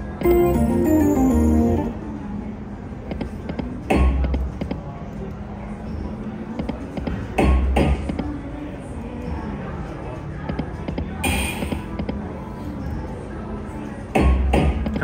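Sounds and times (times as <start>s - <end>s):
slot machine background music: 0.2s - 2.2s.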